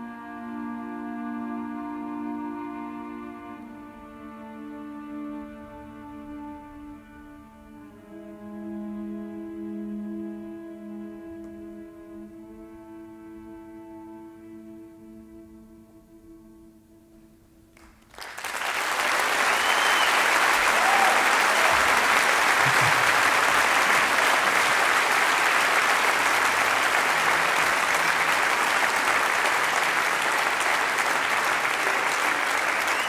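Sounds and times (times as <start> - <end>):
soft music: 0.0 - 17.7
applause: 17.7 - 33.0.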